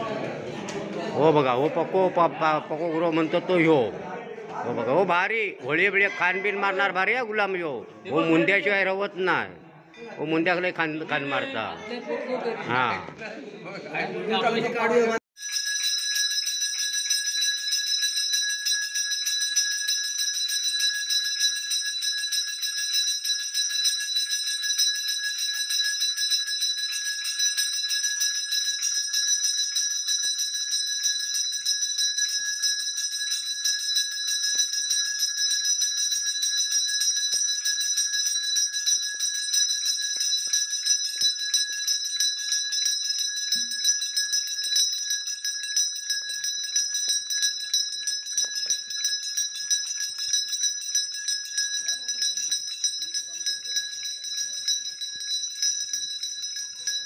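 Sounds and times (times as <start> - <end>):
temple bell ringing: 15.4 - 57.0.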